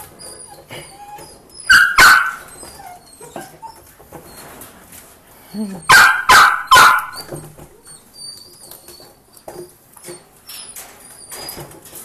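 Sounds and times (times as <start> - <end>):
puppies whimpering: 0.0 - 4.7, 7.0 - 9.5
loud sharp dog barks: 1.7 - 2.4, 5.9 - 7.2.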